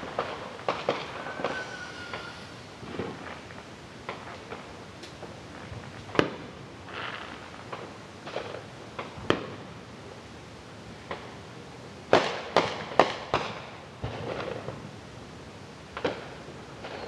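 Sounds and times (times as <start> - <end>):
fireworks banging: 0.0 - 9.7, 12.1 - 14.9, 15.9 - 17.0
soft firework pops: 0.1 - 9.6, 11.0 - 11.4, 12.1 - 14.8, 15.9 - 17.0.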